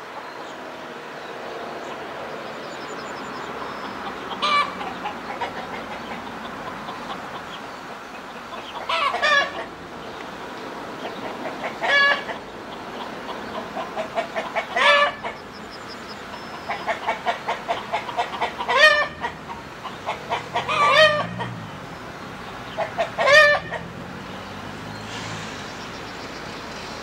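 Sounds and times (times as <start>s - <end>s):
diesel locomotive engine drone: 0.0s - 27.0s
hen cackling and squawking: 3.5s - 10.2s, 10.9s - 24.2s.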